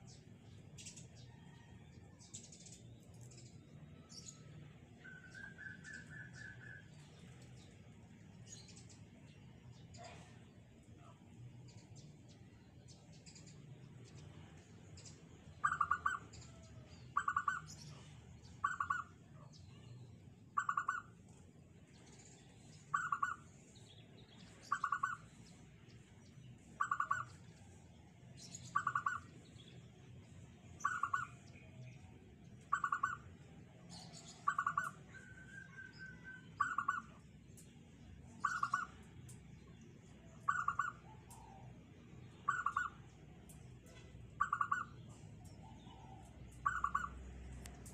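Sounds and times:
small birds chirping: 0.0 - 47.9.

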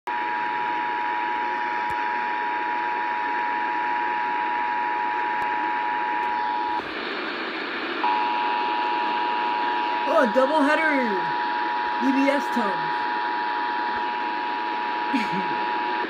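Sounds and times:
radio static hiss: 6.2 - 16.0
two-tone alert alarm: 8.0 - 15.9.

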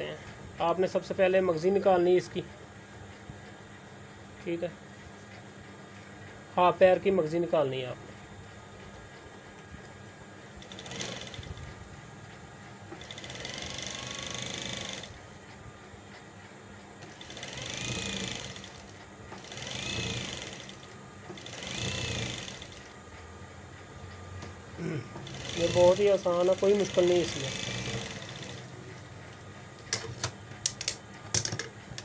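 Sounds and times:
sewing machine stitching: 10.6 - 11.7, 13.0 - 15.2, 17.0 - 22.9, 25.2 - 28.8.

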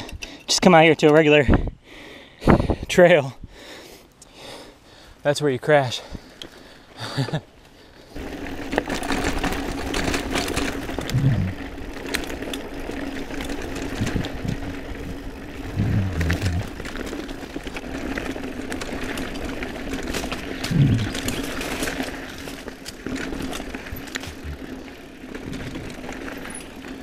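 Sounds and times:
bike rattling on trail: 6.0 - 27.0
tyres rolling on dirt: 6.5 - 27.0.

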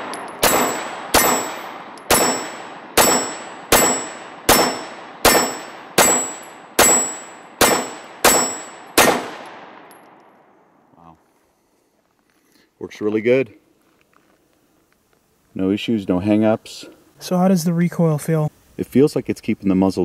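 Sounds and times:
pistol shots with echo: 0.0 - 10.2.

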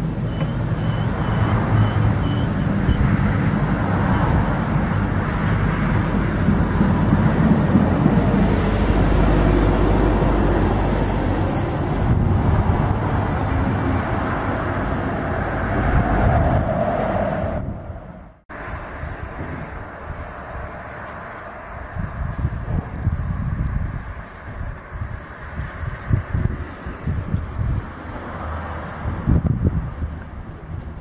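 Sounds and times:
train wheels rumbling on rails: 0.0 - 17.6
wind noise: 0.0 - 31.0.

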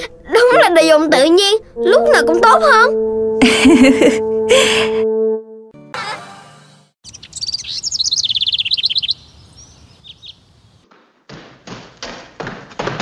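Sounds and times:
bird chirping trill: 7.0 - 10.8.

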